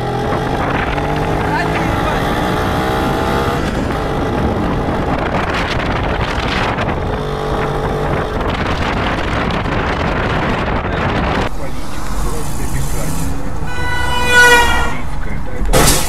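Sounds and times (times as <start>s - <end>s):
vehicle engine accelerating: 0.0s - 16.0s
wind noise on microphone: 0.0s - 16.0s.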